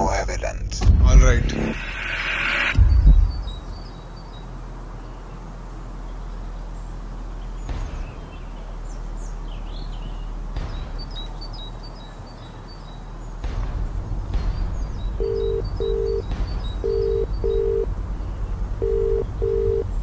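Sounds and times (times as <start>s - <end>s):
low steady rumble: 13.1s - 20.0s
telephone ringback tone: 15.2s - 16.2s, 16.8s - 17.9s, 18.8s - 19.9s.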